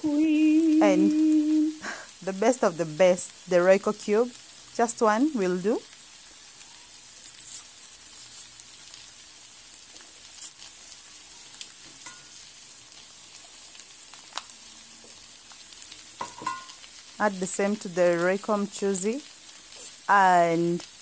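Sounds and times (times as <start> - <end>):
stew sizzling in a frying pan: 0.0 - 21.0
foil wrapper crinkling: 6.6 - 11.8.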